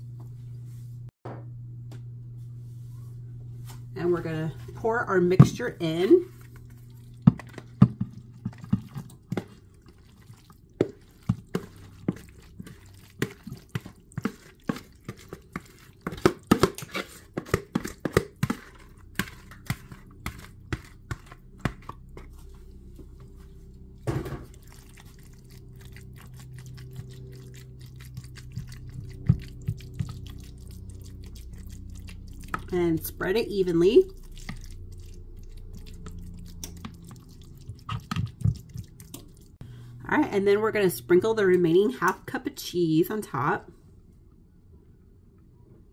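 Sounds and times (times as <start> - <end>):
spoon scraping a bowl: 10.8 - 22.3
wet food plopping into a dish: 24.1 - 32.7, 34.0 - 39.5.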